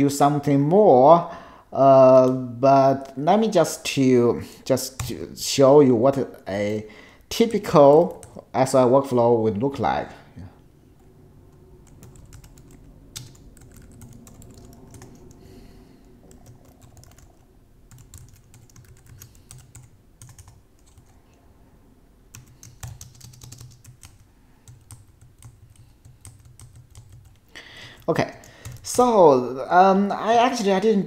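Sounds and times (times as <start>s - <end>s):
computer keyboard typing: 7.7s - 8.5s, 11.8s - 15.4s, 16.2s - 21.2s, 22.3s - 29.0s.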